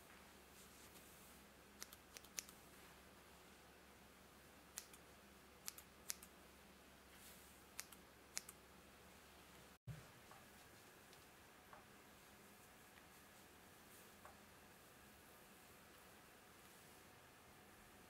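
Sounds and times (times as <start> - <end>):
scissors snipping hair: 1.8 - 2.6, 4.7 - 5.0, 5.6 - 6.3, 7.8 - 8.6.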